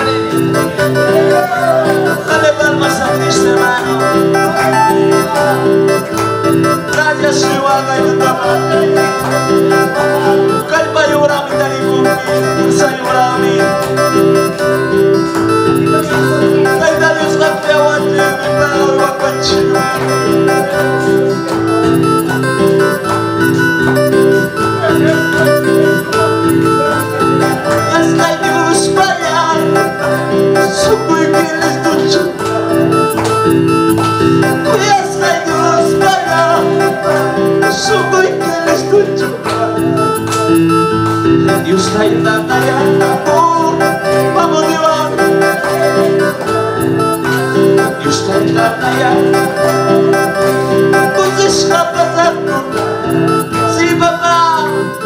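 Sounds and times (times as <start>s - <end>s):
electronic keyboard: 0.0s - 55.0s
man singing into a microphone: 0.0s - 55.0s.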